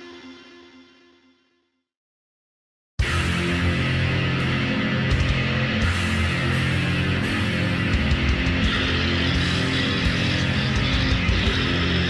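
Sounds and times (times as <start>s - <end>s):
distorted electric guitar chord: 3.0s - 12.0s.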